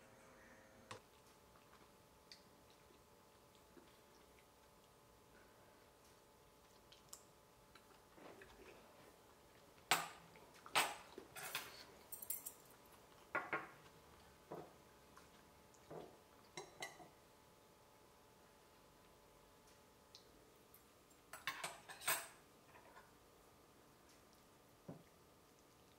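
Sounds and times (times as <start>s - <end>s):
utensils clinking on ceramic bowls: 9.9s - 12.6s.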